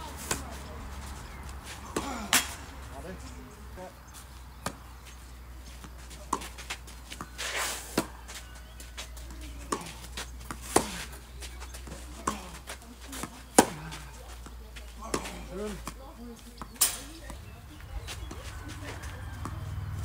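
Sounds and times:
rackets striking tennis ball: 0:01.6 - 0:02.8, 0:04.5 - 0:19.7
shoes sliding on clay: 0:04.1 - 0:20.0
ball bouncing: 0:05.8 - 0:17.5, 0:18.3 - 0:19.7.

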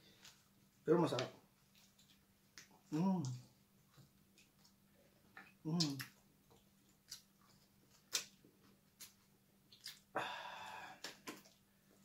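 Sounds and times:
eating noise: 0:05.4 - 0:10.2.

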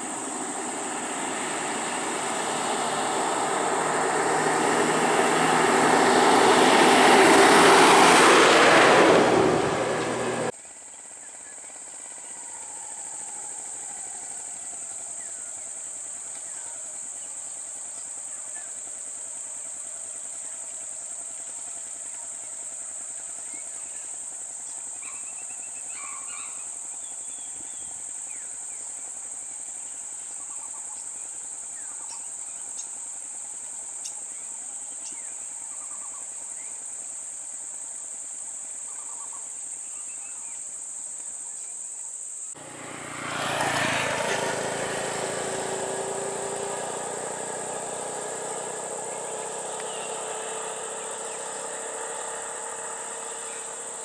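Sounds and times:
low engine hum: 0:00.0 - 0:10.8, 0:42.6 - 0:54.0
high-pitched insect drone: 0:46.2 - 0:54.0.

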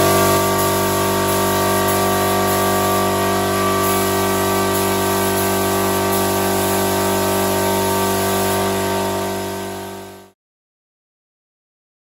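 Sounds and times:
steady hum: 0:00.0 - 0:08.8
paint spray gun hissing: 0:00.0 - 0:10.4.

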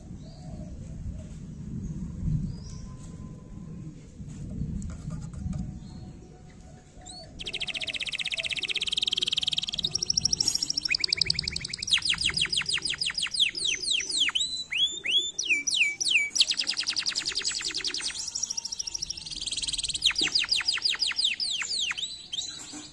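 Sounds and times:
canary singing trills: 0:05.8 - 0:22.9.

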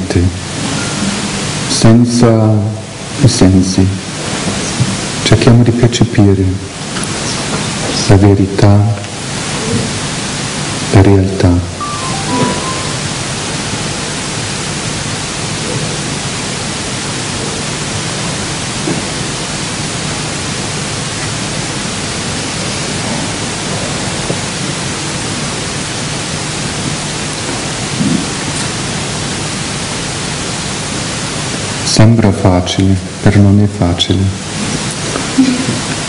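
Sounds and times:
steady background hiss: 0:00.0 - 0:36.0.

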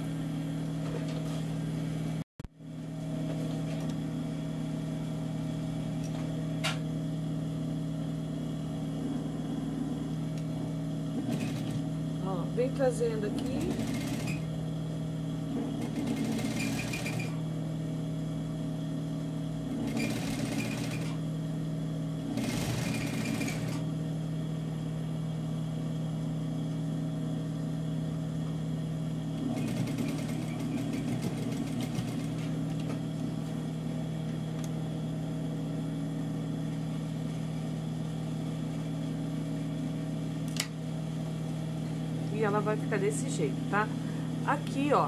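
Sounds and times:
motor hum: 0:00.0 - 0:45.0
sewing machine stitching: 0:11.2 - 0:11.8, 0:13.4 - 0:14.5, 0:15.7 - 0:17.4, 0:19.8 - 0:21.2, 0:22.3 - 0:23.8, 0:29.4 - 0:32.5.

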